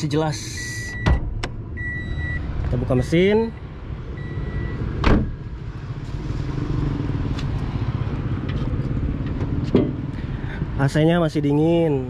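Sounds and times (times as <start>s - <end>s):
sharp clunk: 5.0s - 5.3s.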